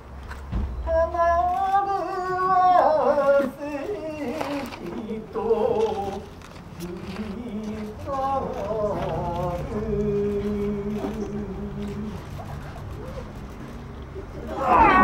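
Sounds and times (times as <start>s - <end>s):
person crying out in stage voice: 14.5s - 15.0s.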